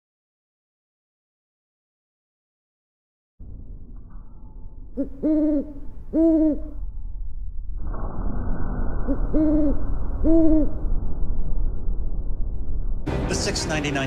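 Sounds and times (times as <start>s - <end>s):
owl-like hooting: 5.0s - 6.9s, 9.1s - 11.0s.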